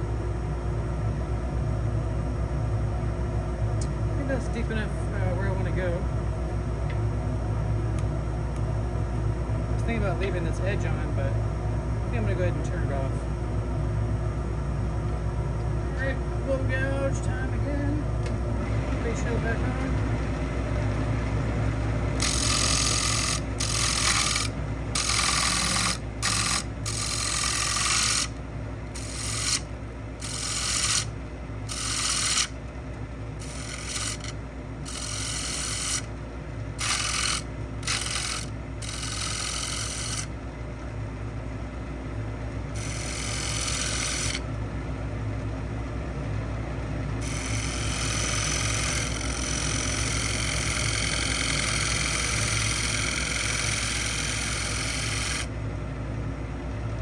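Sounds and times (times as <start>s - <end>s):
lathe motor hum: 16.4s - 40.4s, 42.7s - 44.7s, 47.2s - 55.6s
gouge cutting wood: 22.2s - 28.4s, 29.0s - 29.6s, 30.2s - 31.1s, 31.7s - 32.5s, 33.4s - 34.3s, 34.9s - 36.1s, 36.8s - 40.3s, 42.8s - 44.4s, 47.2s - 55.5s.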